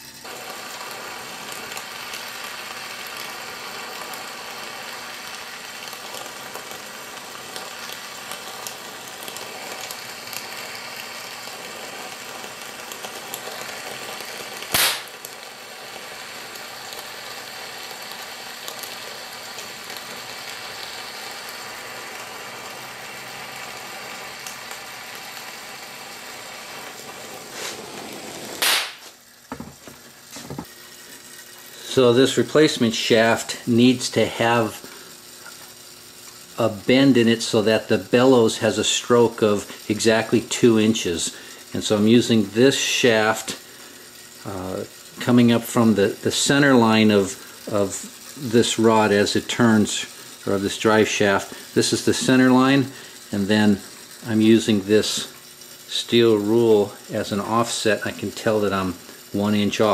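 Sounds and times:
gas torch flame hissing: 0.0s - 59.9s.

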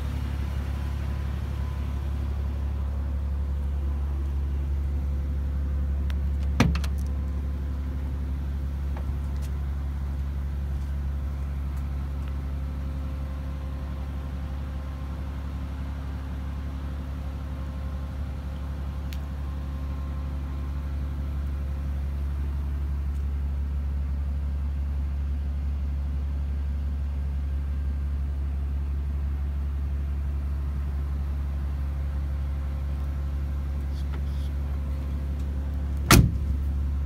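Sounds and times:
car engine idling: 0.0s - 37.0s
door latch thunk: 6.6s - 7.0s, 36.1s - 36.4s.

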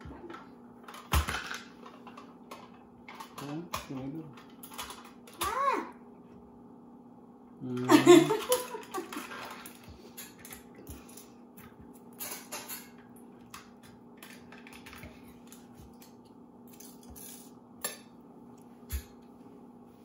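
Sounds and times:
woman laughing: 7.8s - 9.5s.

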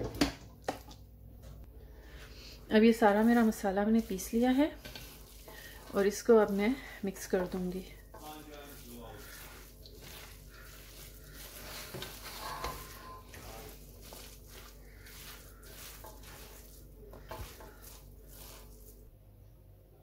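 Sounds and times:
hand mixing meat in a bowl: 0.6s - 19.1s.

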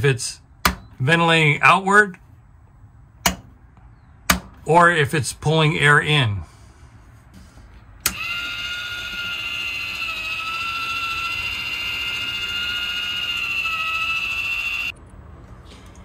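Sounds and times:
roof vent fan running: 6.5s - 15.0s
high whine: 8.0s - 14.9s.

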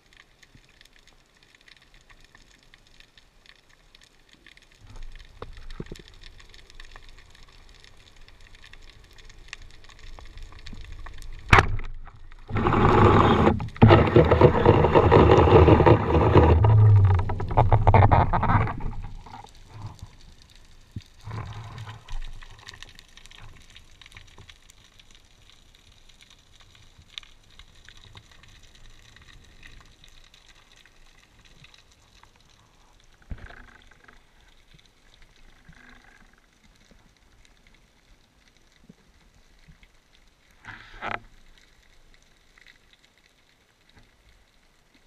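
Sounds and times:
faint underwater clicks: 0.0s - 45.0s
water rushing underwater: 9.0s - 23.8s
knock underwater: 11.5s - 19.2s.

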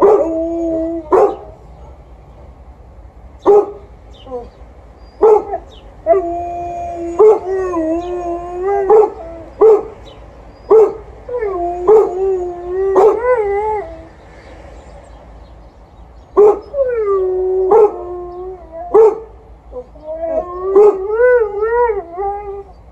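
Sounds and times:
dog barking: 1.1s - 2.1s, 3.5s - 3.8s, 5.2s - 5.6s
dog howling: 5.2s - 9.9s, 19.8s - 22.7s.

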